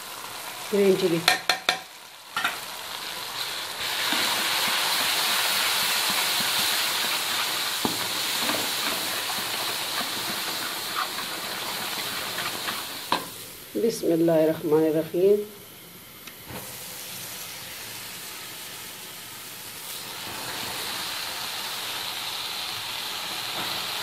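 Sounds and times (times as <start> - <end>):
spices sizzling in hot oil: 0.0 - 24.0
wooden spoon knocking: 1.3 - 1.8.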